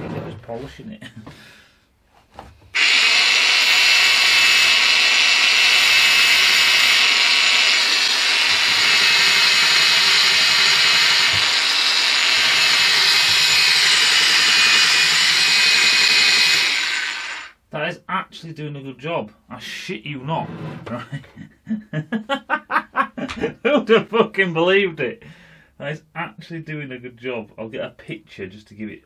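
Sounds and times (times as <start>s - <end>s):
belt sander whining: 2.7s - 17.6s.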